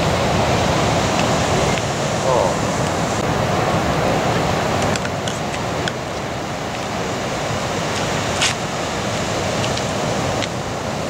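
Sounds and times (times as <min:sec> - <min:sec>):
ocean surf breaking: 0:00.0 - 0:11.0
wind on microphone: 0:00.0 - 0:11.0.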